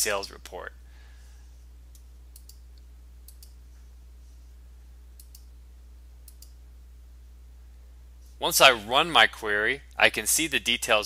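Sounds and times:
low electrical hum: 0.0s - 11.0s
computer mouse clicks: 1.9s - 3.6s, 5.2s - 5.5s, 6.2s - 6.6s.

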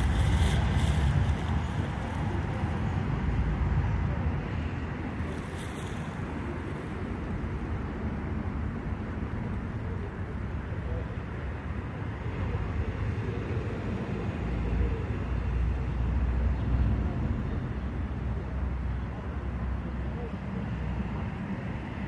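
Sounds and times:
wind buffeting microphone: 0.0s - 8.7s
distant traffic: 0.0s - 22.0s.

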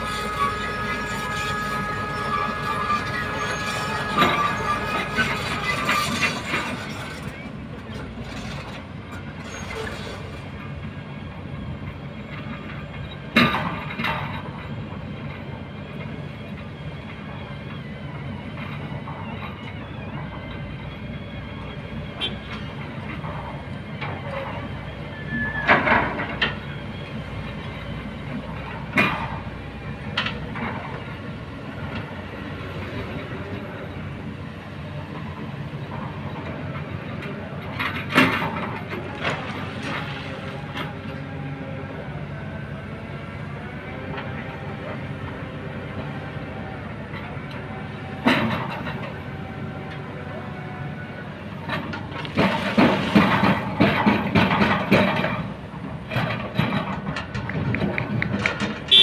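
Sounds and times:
high steady squeal: 0.0s - 7.5s
excavator engine and hydraulics: 0.0s - 59.0s.

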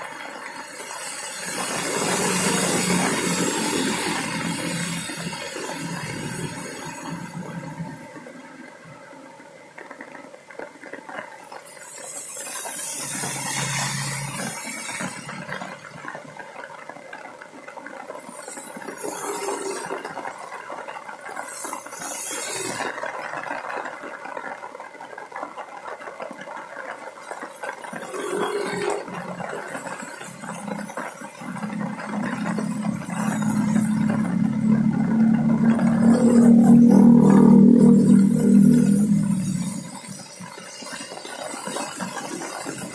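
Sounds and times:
rain on wet street: 0.0s - 42.9s
tyres swishing on wet road: 0.0s - 42.9s
low droning hum: 31.5s - 40.2s.

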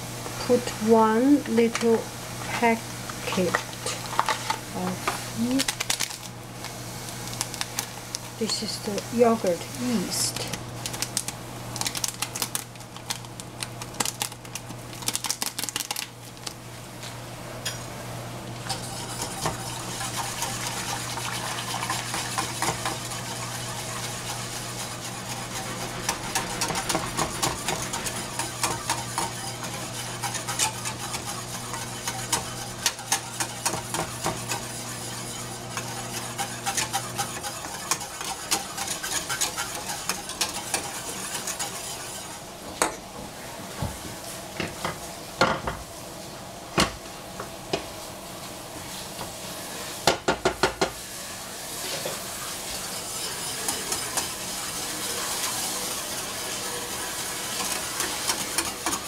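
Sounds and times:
whisk clattering in metal pan: 18.6s - 42.9s, 52.4s - 59.0s.

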